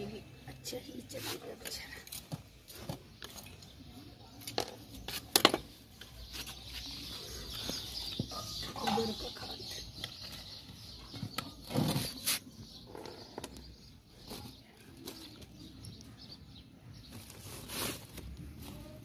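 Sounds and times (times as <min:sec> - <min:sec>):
birds calling: 0:01.4 - 0:18.0
hands rustling compost: 0:17.0 - 0:19.0.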